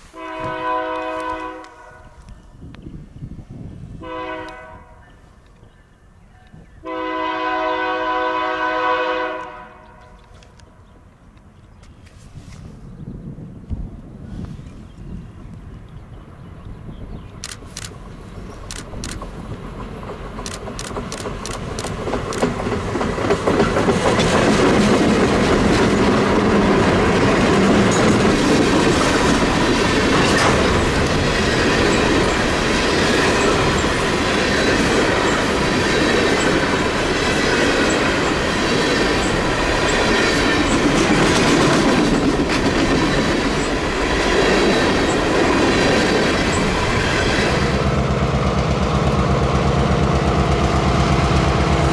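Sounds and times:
diesel locomotives passing: 0.0s - 51.9s
clickety-clack of train wheels: 17.1s - 51.9s.

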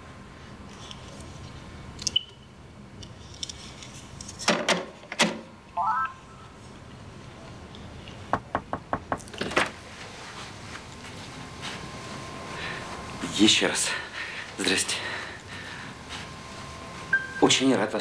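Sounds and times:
knocking on a door: 8.4s - 9.4s.

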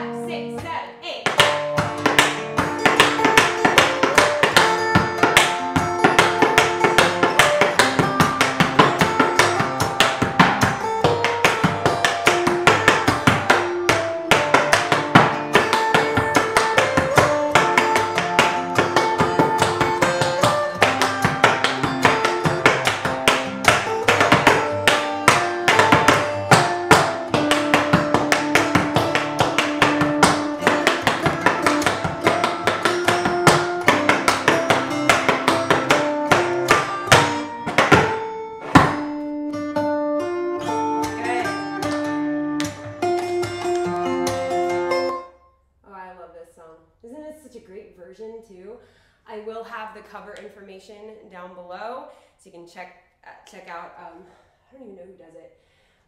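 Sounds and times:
tap shoes on wooden board: 0.6s - 39.2s, 41.0s - 44.6s.

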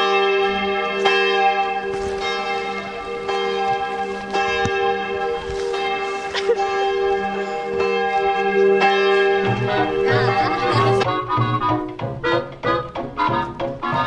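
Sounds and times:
church bells ringing: 0.0s - 11.1s.

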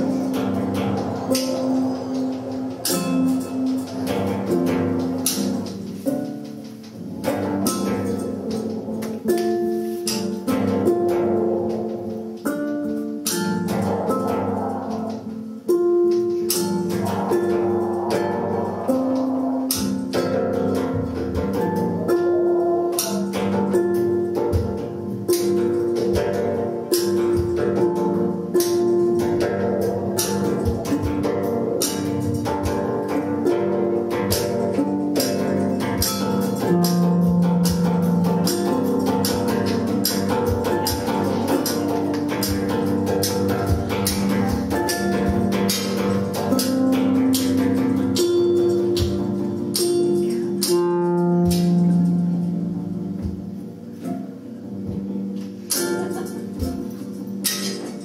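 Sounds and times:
bicycle wheel played as instrument: 0.0s - 58.0s
held pitched notes: 0.0s - 58.0s.

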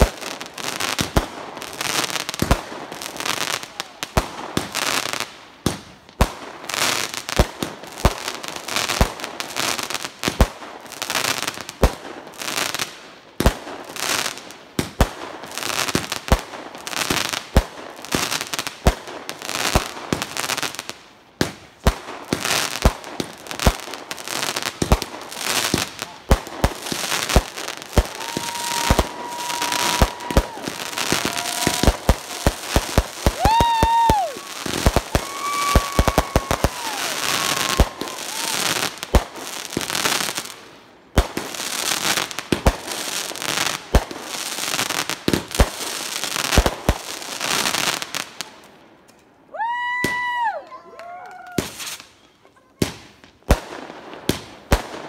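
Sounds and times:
fireworks crackling bursts: 0.0s - 55.0s
fireworks sharp bangs: 21.4s - 48.2s
fireworks whistling: 24.5s - 40.5s, 51.6s - 52.4s.

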